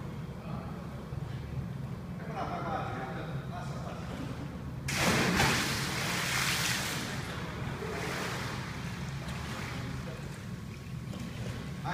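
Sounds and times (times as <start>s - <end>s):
big splash into pool: 4.9s - 8.6s
swimming splashes: 4.9s - 11.8s.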